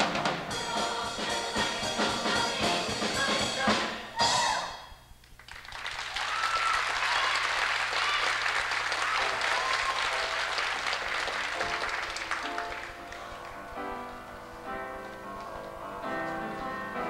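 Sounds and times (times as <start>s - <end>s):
audience applause: 5.4s - 13.6s
piano music: 9.1s - 17.0s.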